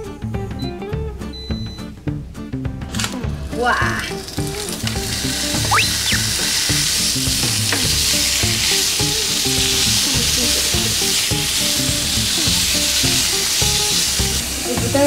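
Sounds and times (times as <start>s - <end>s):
chopsticks turning meat in pan: 3.8s - 15.0s
meat sizzling in a frying pan: 4.1s - 15.0s.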